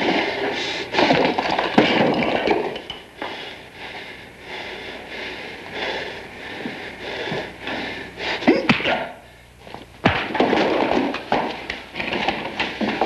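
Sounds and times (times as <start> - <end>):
man panting and gasping: 3.2 - 9.6.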